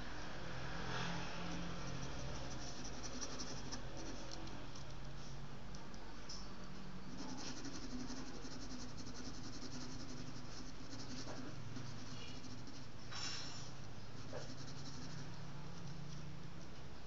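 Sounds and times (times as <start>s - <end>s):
steady low hum: 0.0s - 17.0s
pencil scratching on paper: 1.3s - 4.9s, 7.1s - 16.2s.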